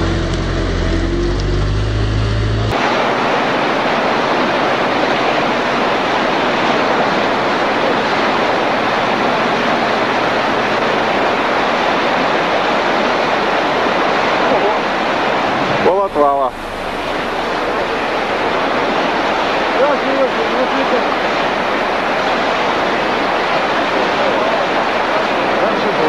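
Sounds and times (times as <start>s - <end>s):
bus engine humming: 0.0s - 24.6s
floodwater rushing: 0.0s - 26.0s.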